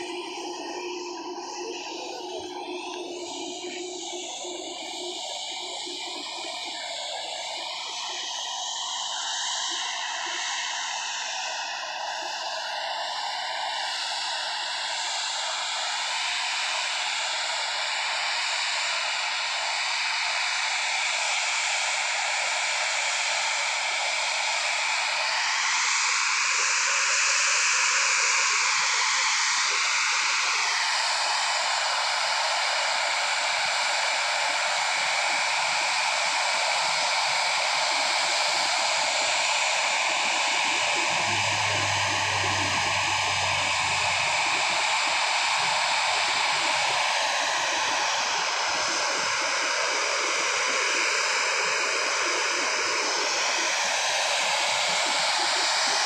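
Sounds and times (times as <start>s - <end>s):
jet engines running: 36.9s - 56.0s.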